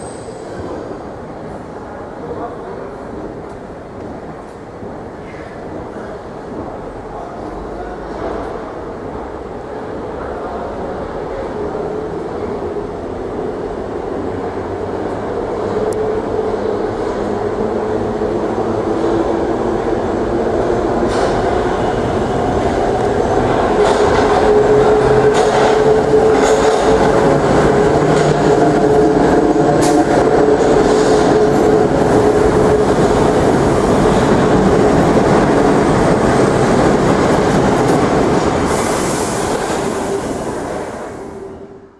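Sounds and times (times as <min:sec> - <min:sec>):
train wheels clicking over rails: 0:22.6 - 0:40.9.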